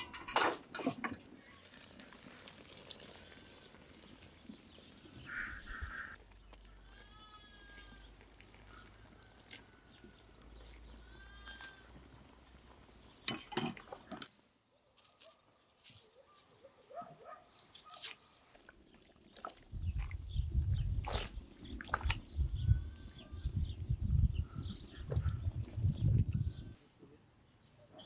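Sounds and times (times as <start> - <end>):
farm animal bleating: 3.1 - 4.4, 5.2 - 12.0, 22.6 - 23.7.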